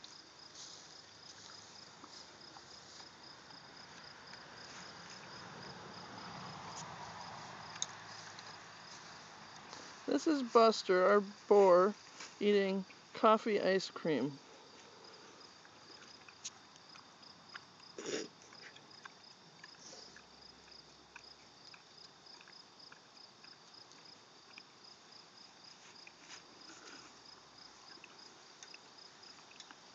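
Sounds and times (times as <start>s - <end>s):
crickets chirping: 0.0s - 29.9s
pig chewing and smacking: 6.2s - 9.9s, 15.1s - 29.9s.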